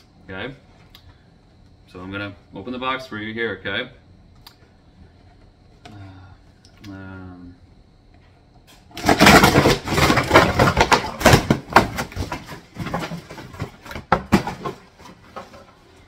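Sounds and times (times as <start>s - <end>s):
sharp snaps: 4.4s - 4.6s.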